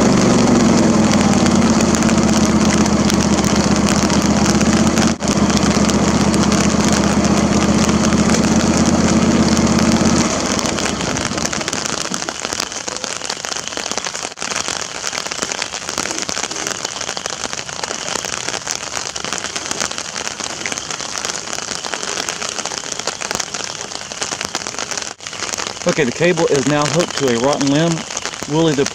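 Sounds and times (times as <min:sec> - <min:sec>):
lawn tractor engine running: 0:00.0 - 0:12.6
rain falling on an umbrella: 0:00.0 - 0:28.9.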